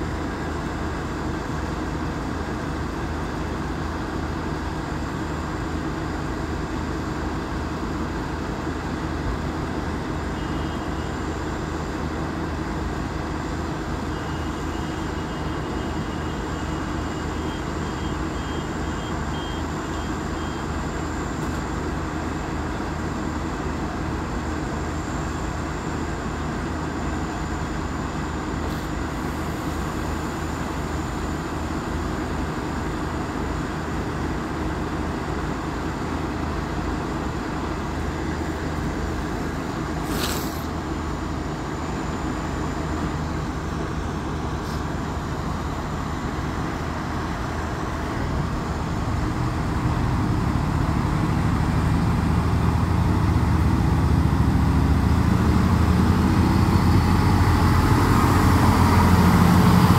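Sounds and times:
diesel train idling: 0.0s - 59.9s
diesel engines revving up: 48.1s - 59.9s.

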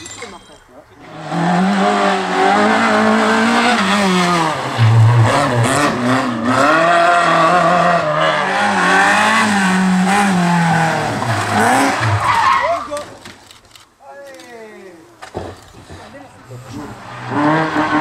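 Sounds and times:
rally car engine revving: 1.0s - 12.6s, 15.9s - 18.0s.

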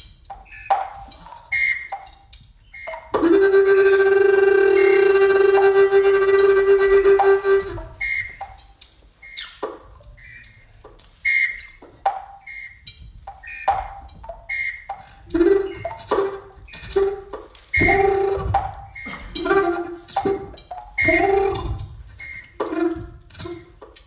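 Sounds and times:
low thump with tone: 17.8s - 22.1s.

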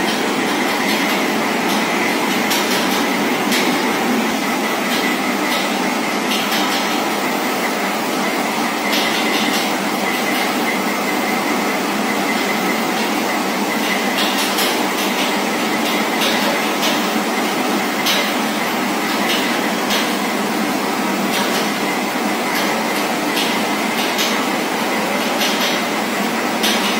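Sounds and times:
train running on rails: 0.0s - 20.6s.

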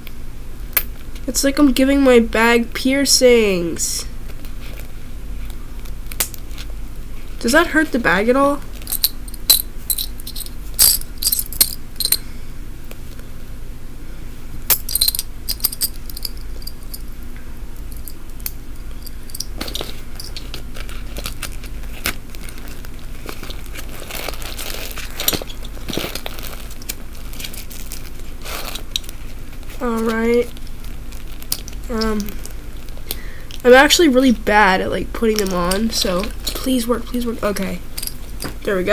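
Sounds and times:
faint steady hum: 0.0s - 38.9s
rustling: 18.9s - 33.7s.

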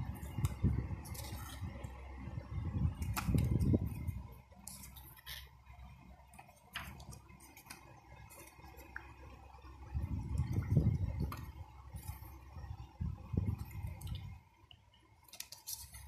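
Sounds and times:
paper pages rustling: 0.1s - 2.0s, 3.0s - 5.5s, 6.4s - 8.9s, 15.2s - 16.0s.

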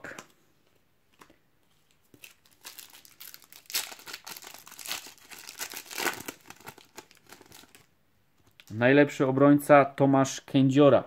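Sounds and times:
wrapper crinkling torn open: 2.2s - 7.9s.

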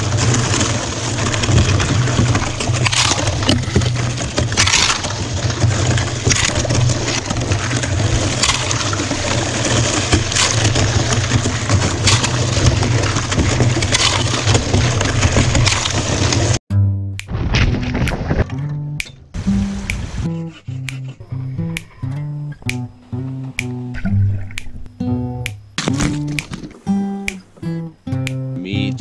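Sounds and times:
ice crunching and cracking: 0.0s - 16.6s.

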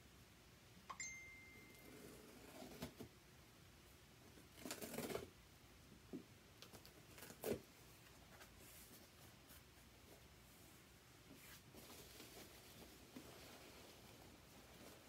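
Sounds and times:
packing tape cut and pulled: 4.6s - 5.3s, 7.1s - 7.6s.

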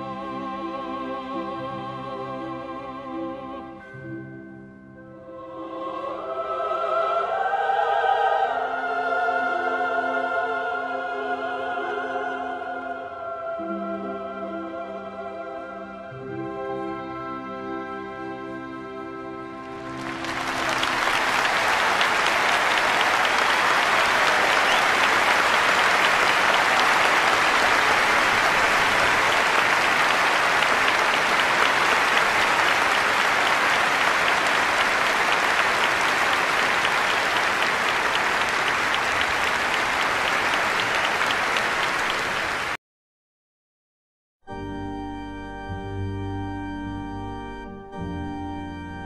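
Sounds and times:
crowd applauding: 19.6s - 42.8s.

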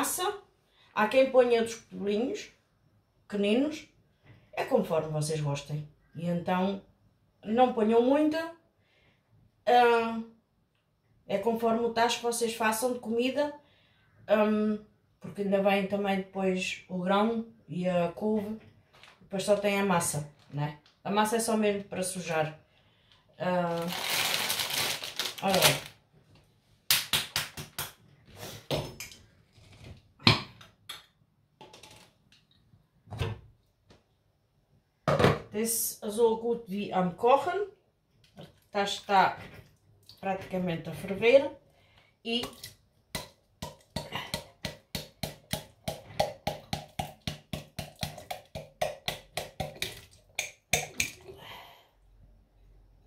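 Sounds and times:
hand slapping glass jar: 42.4s - 51.2s.

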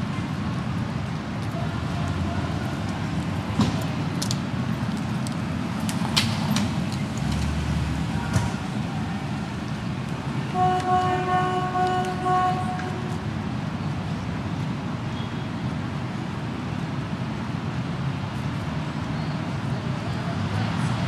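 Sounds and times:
traffic rumble: 0.0s - 21.0s
vehicle horn: 10.5s - 13.2s.

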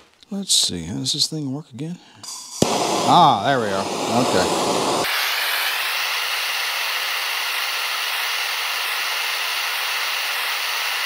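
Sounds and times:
gas torch hissing: 2.2s - 11.0s.

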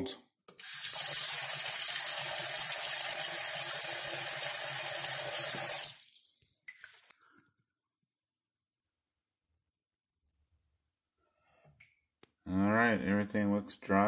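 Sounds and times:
faucet running into sink: 0.5s - 6.9s.

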